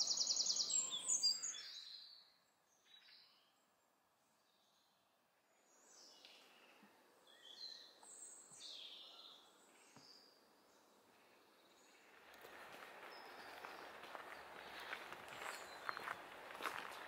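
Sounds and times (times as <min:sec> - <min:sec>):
birds chirping: 0:00.0 - 0:03.4, 0:05.7 - 0:17.0
footsteps on wooden boardwalk: 0:11.9 - 0:17.0.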